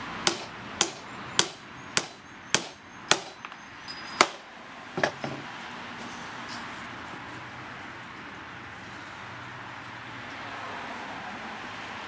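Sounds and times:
hammer striking nails into wood: 0.2 - 3.6, 4.2 - 5.2.

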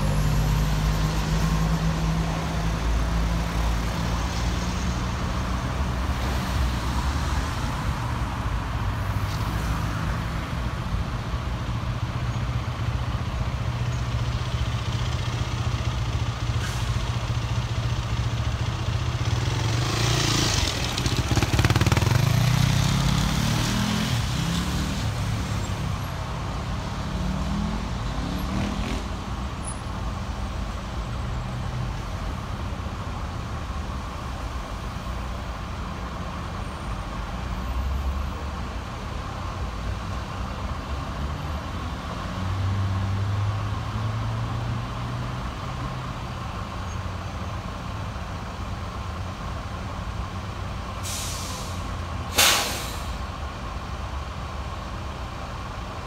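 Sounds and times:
bus and car engines idling: 10.2 - 56.0
bus air brakes hissing: 16.5 - 17.2, 51.0 - 53.3.

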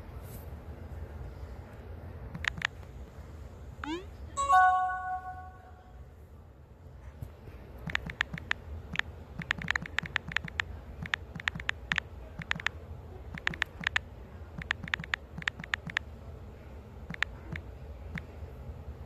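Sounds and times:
low steady hum: 0.0 - 19.0
phone keyboard key clicks: 2.3 - 2.8, 7.8 - 12.7, 13.3 - 14.0, 14.6 - 16.0, 17.1 - 18.2.

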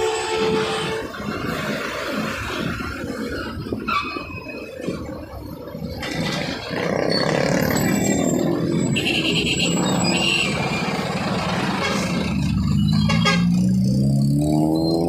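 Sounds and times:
wind rush on microphone: 0.1 - 5.4.

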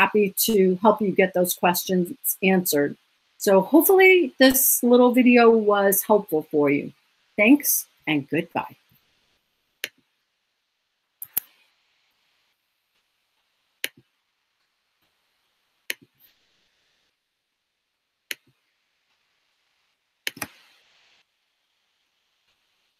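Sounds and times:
faint hiss: 0.0 - 22.9
computer mouse clicking: 20.2 - 20.8.

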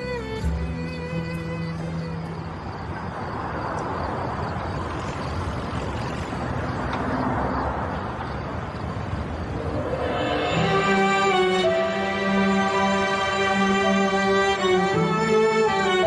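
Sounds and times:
steady rushing noise: 7.8 - 16.0.

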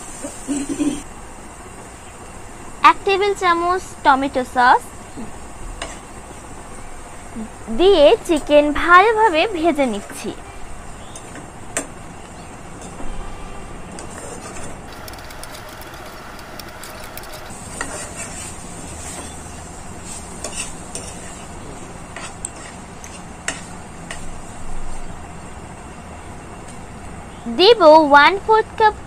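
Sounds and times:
filling sizzling in a frying pan: 14.9 - 24.6
spatula scraping a pan: 17.0 - 21.5, 22.1 - 23.7.

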